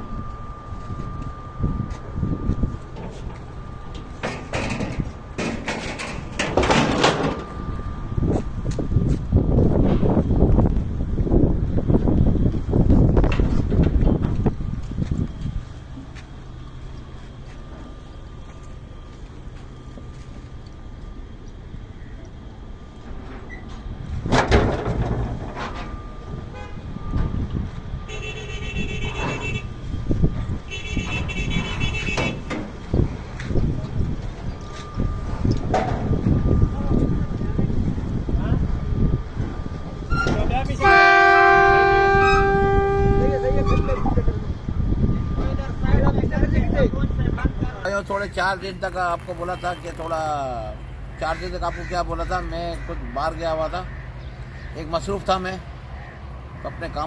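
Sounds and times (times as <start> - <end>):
diesel truck engine rumbling: 0.0 - 57.0
low rumble: 32.4 - 40.8.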